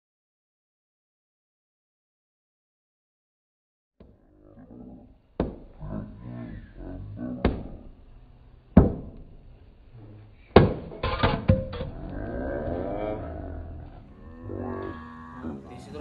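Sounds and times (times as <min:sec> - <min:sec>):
hand striking masonry blocks: 0:05.4 - 0:05.8, 0:07.4 - 0:07.9, 0:08.8 - 0:09.4, 0:10.5 - 0:11.9.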